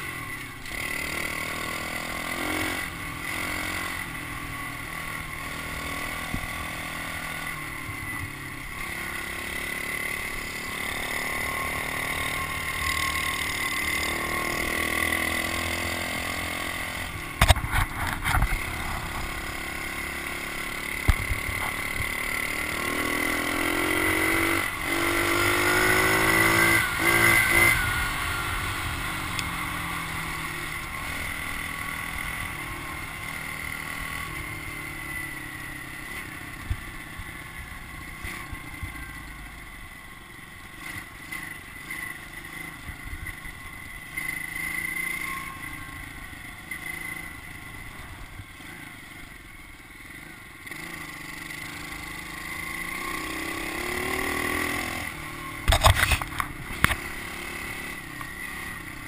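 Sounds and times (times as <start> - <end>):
motorbike engine revving: 0.0 - 37.3, 50.1 - 59.0.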